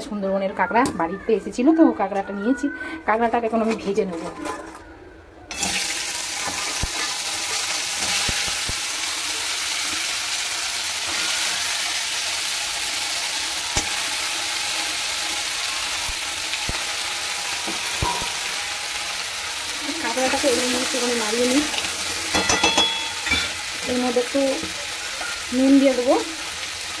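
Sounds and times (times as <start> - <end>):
crab frying in oil: 5.5 - 27.0
sharp clicks in wok: 13.7 - 14.0.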